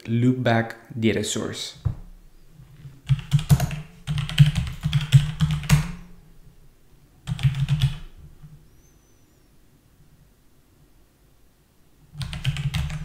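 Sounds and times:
computer keyboard typing: 3.0s - 6.0s, 7.2s - 8.6s, 12.2s - 13.0s.

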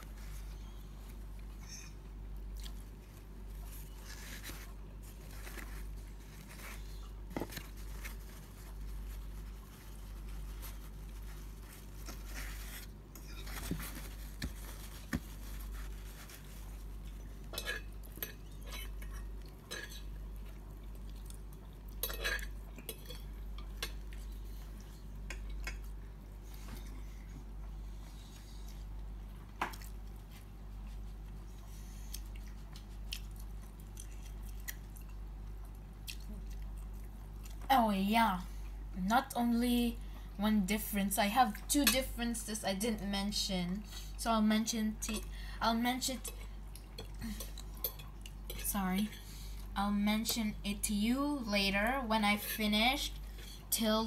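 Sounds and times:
soft chewing: 0.0s - 37.7s, 46.1s - 49.8s
steady low hum: 0.0s - 54.0s.

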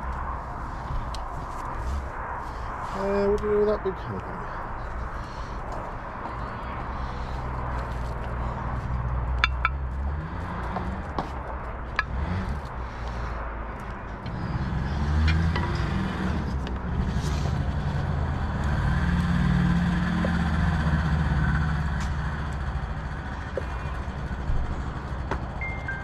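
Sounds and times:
low engine rumble: 0.0s - 26.0s.

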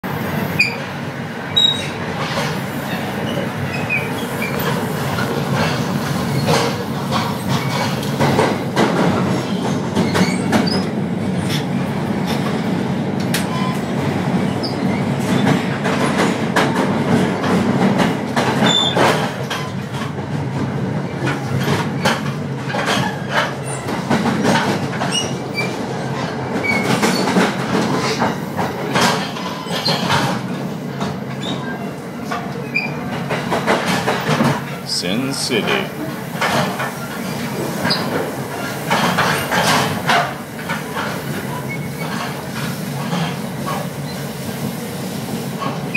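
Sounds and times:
train rumble: 0.0s - 45.9s.

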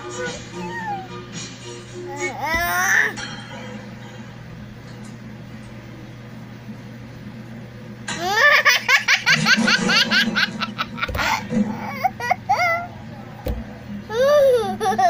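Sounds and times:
young child giggling: 14.1s - 15.0s.

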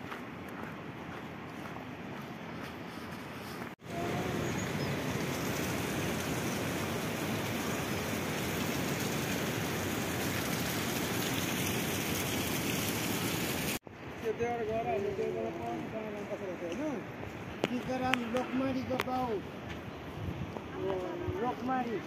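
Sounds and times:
flowing river water: 3.8s - 13.8s.

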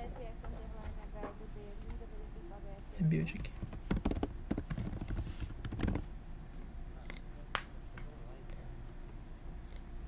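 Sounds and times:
keyboard keystrokes: 3.4s - 6.0s.

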